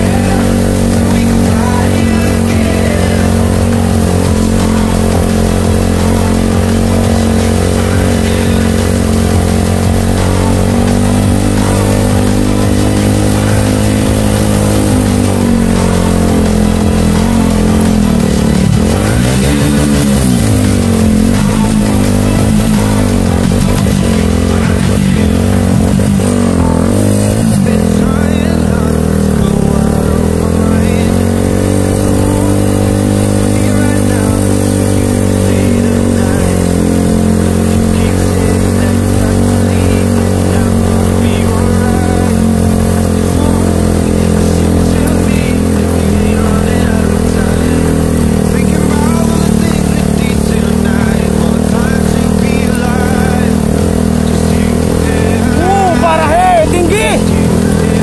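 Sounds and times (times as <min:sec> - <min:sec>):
vehicle engine running: 0:00.0 - 0:58.0.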